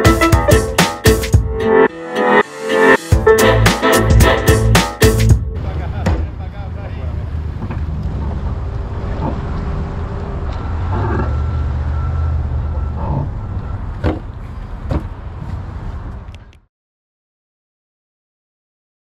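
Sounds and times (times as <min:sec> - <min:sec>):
truck engine rumbling: 0:05.4 - 0:16.7
sharp knocks: 0:14.0 - 0:14.3.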